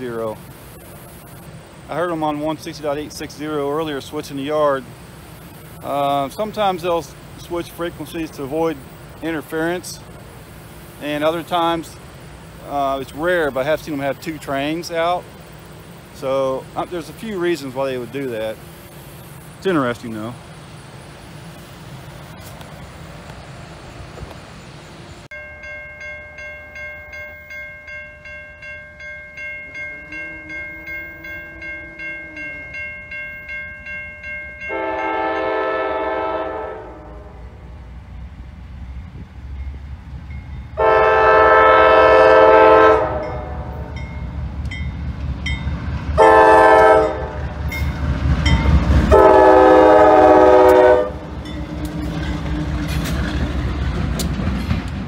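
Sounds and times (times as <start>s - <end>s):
crossing warning bell ringing: 0.0s - 20.8s, 25.3s - 37.7s, 38.7s - 54.8s
diesel engine rumbling: 0.0s - 55.0s
locomotive air horn: 29.7s - 32.8s, 34.7s - 37.6s, 40.8s - 44.0s, 46.2s - 47.6s, 49.1s - 52.8s.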